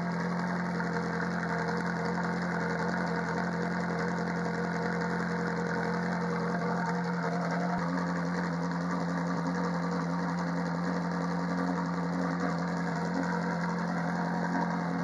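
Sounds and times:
car engine idling: 0:00.0 - 0:15.0.

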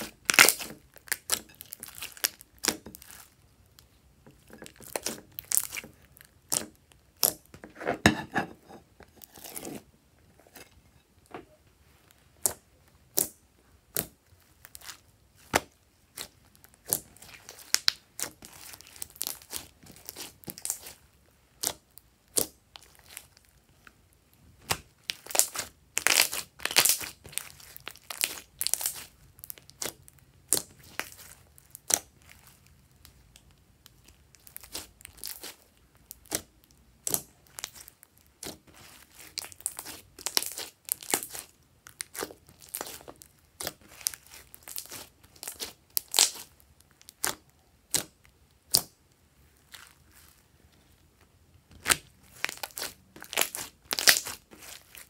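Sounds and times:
slime popping and crackling: 0:00.0 - 0:03.8, 0:04.4 - 0:07.5, 0:12.4 - 0:21.0, 0:24.6 - 0:49.0, 0:51.7 - 0:55.0.

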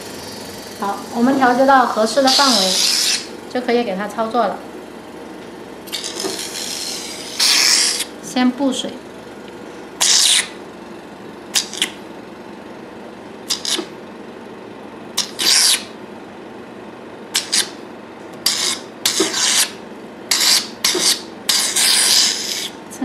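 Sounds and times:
suction handpiece sucking hisses: 0:02.2 - 0:03.3, 0:05.9 - 0:08.1, 0:10.0 - 0:10.5.

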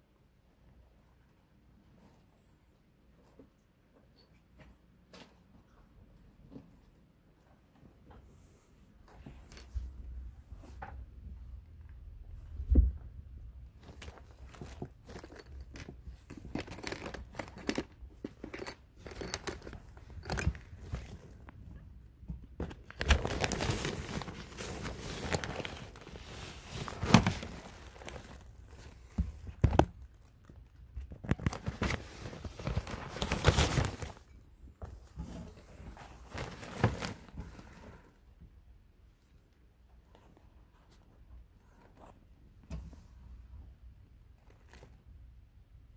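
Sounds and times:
nylon fabric rustling and crackling: 0:22.8 - 0:34.3, 0:35.1 - 0:38.1.

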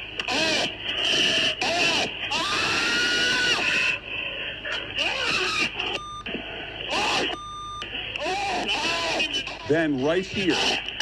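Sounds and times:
censor bleeps: 0:07.0 - 0:07.8.

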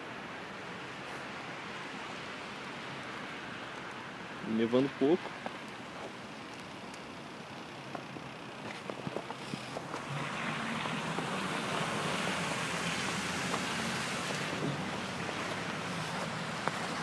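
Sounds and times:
steady rushing hiss: 0:00.0 - 0:17.0.

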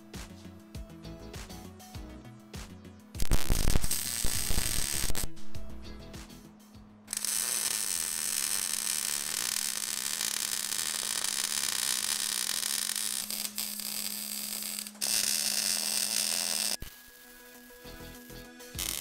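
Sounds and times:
welding arc crackling: 0:03.2 - 0:05.3, 0:07.1 - 0:19.0.

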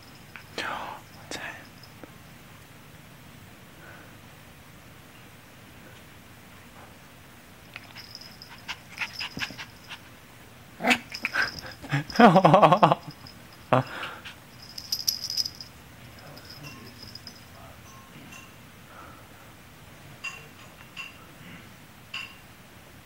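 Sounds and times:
light clicking and jingling: 0:00.0 - 0:02.2, 0:07.7 - 0:10.1, 0:11.0 - 0:18.6, 0:20.2 - 0:21.2
puppy growling: 0:10.8 - 0:12.0.

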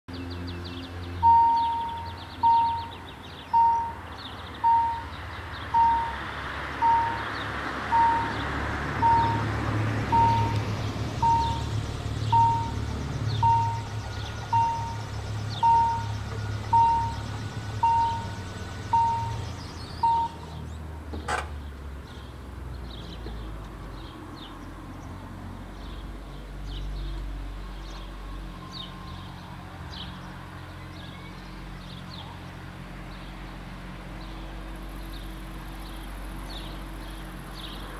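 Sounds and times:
level-crossing warning bell: 0:01.2 - 0:03.0, 0:03.6 - 0:04.0, 0:04.6 - 0:05.2, 0:05.8 - 0:06.2, 0:06.8 - 0:07.2, 0:07.9 - 0:08.4, 0:09.0 - 0:09.5, 0:10.1 - 0:10.6, 0:11.2 - 0:11.7, 0:12.3 - 0:12.8, 0:13.4 - 0:19.4, 0:20.0 - 0:20.5
faint high chirps: 0:01.2 - 0:04.0, 0:04.6 - 0:05.2, 0:15.6 - 0:20.5.

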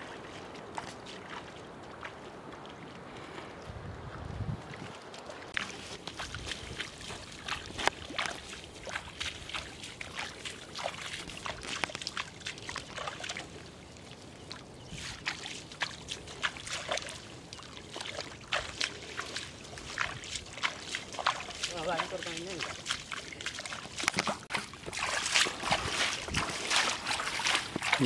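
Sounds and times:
feet wading through shallow water: 0:00.0 - 0:28.0.

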